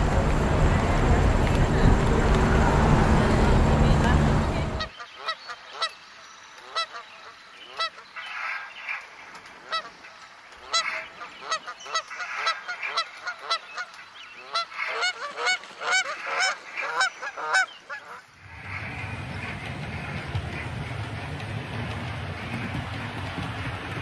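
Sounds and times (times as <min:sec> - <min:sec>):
geese honking: 0:00.0 - 0:05.9, 0:09.6 - 0:21.4.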